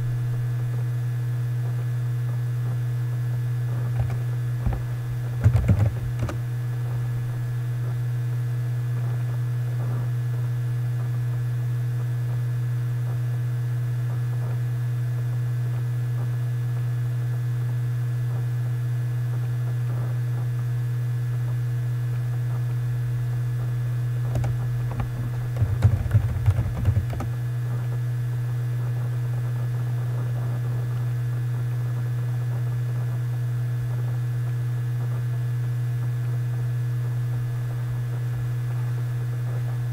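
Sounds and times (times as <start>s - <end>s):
low electrical hum: 0.0s - 39.9s
computer keyboard typing: 4.0s - 6.4s, 24.3s - 27.4s.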